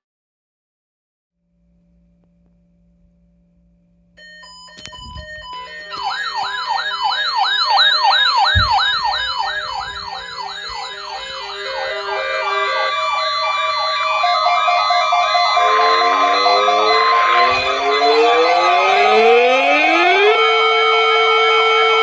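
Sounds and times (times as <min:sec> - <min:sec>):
siren-like warbles: 0:04.8 - 0:22.0
steady alert tone: 0:07.9 - 0:19.9
low thumps of handling: 0:08.4 - 0:10.9
alert beeping: 0:08.4 - 0:19.4.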